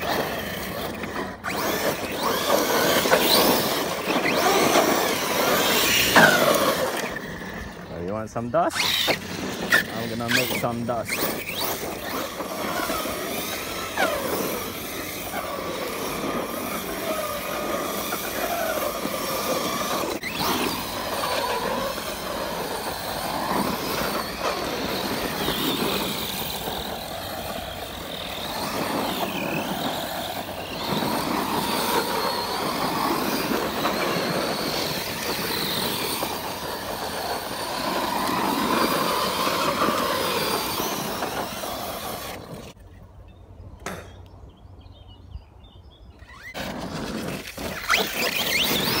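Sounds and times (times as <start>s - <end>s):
rc truck motor whine: 0.0s - 42.8s, 46.1s - 49.0s.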